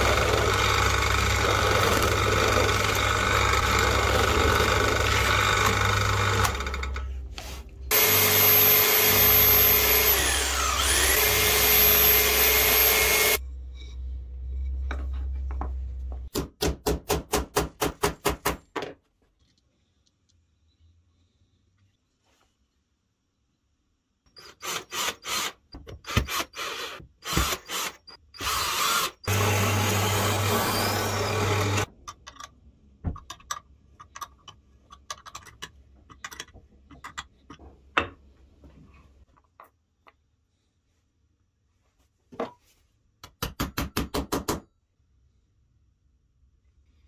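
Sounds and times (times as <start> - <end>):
handheld power tool running: 0.0 - 7.1, 7.9 - 13.4, 24.5 - 31.9
knocks and taps on wood and metal: 43.2 - 44.7.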